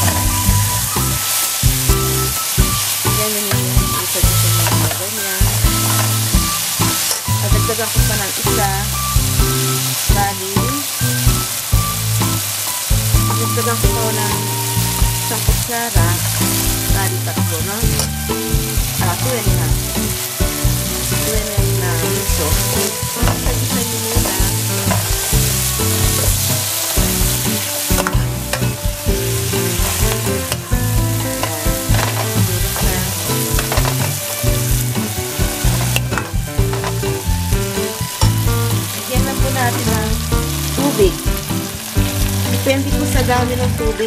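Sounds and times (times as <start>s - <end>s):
onions sizzling in hot oil: 0.0s - 44.0s
metal spoon scraping a pan: 17.8s - 18.3s, 22.0s - 34.7s.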